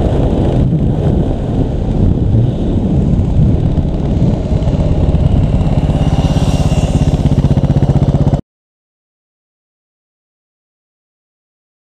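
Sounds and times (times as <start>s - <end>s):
single-cylinder motorcycle engine: 0.0s - 8.4s.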